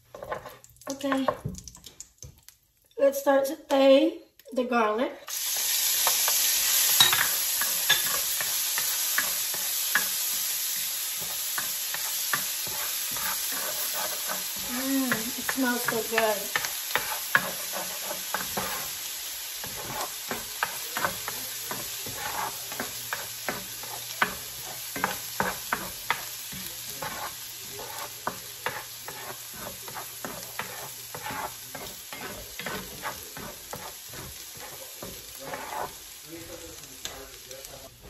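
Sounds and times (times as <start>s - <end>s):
spatula scraping a pan: 0.0s - 1.4s, 5.6s - 38.0s
garlic sizzling in a skillet: 0.0s - 38.0s.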